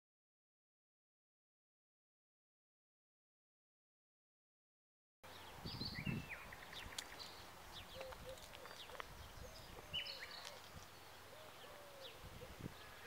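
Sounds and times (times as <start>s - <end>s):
light outdoor hiss: 5.2s - 13.0s
small birds chirping: 5.2s - 13.0s.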